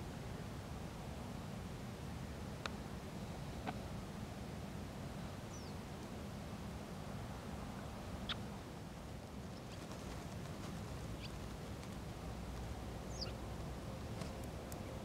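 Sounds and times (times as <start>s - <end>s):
low outdoor rumble: 0.0s - 15.0s
high bird calls: 13.1s - 13.4s.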